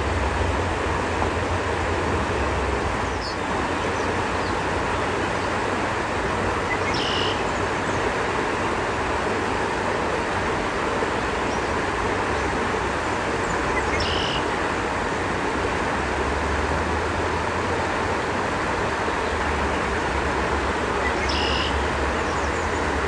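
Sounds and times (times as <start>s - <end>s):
river rushing over rocks: 0.0s - 23.0s
bird high call: 6.7s - 7.4s, 13.9s - 14.5s, 21.2s - 21.8s.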